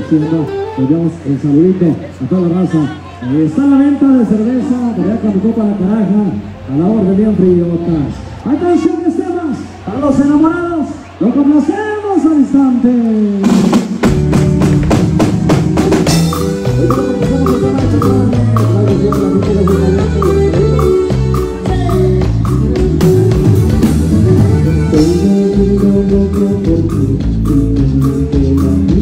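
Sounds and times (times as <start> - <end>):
live band playing dance music: 0.0 - 29.0
drum kit beat: 13.4 - 29.0.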